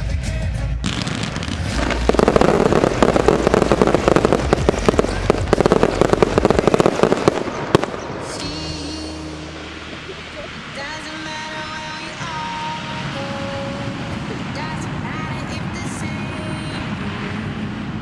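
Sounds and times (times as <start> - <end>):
loud firework bang: 0.8 - 8.4
fireworks bursts and crackling: 0.8 - 18.0.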